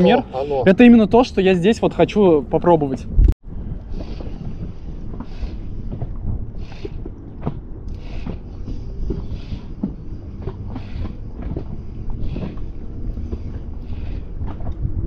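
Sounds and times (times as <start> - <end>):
wind buffeting microphone: 0.0 - 15.0
water lapping against boat: 3.4 - 15.0
light knocks against hull: 5.9 - 14.9.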